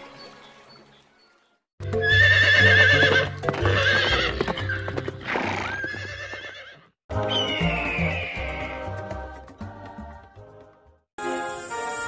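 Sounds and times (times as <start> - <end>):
hoofbeats clip-clopping: 1.9 - 6.6
horse neighing: 2.0 - 6.9
children's music with bass: 7.1 - 12.0.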